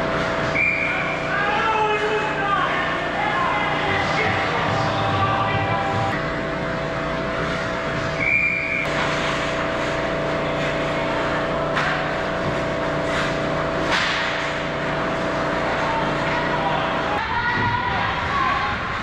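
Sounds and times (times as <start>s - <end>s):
steady hum: 0.0s - 19.0s
referee's whistle blast: 8.2s - 8.9s
skates scraping on ice: 8.9s - 14.3s.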